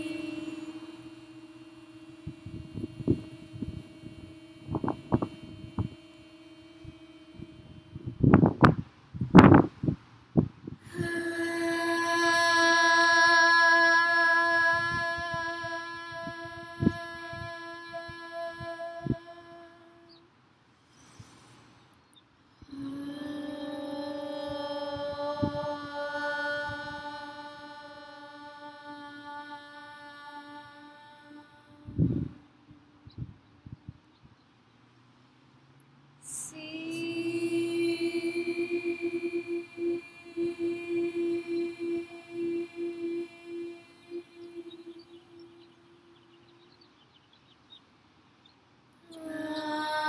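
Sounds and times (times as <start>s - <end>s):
singing bowl ringing: 0.0s - 8.6s, 22.7s - 28.3s
women singing a long note: 0.0s - 10.0s, 10.7s - 20.3s, 22.5s - 33.8s, 36.2s - 47.0s, 49.0s - 50.0s
wind thumps on microphone: 2.5s - 5.9s, 7.9s - 10.9s.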